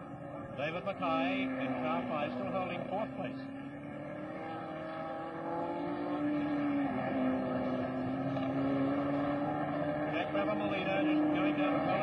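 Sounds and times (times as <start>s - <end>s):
racing car engine at speed: 0.0s - 12.0s.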